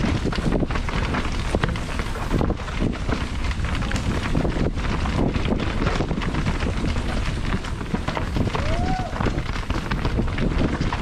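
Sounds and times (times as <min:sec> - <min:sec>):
mountain bike rattling on trail: 0:00.0 - 0:11.0
wind buffeting the microphone: 0:00.0 - 0:11.0.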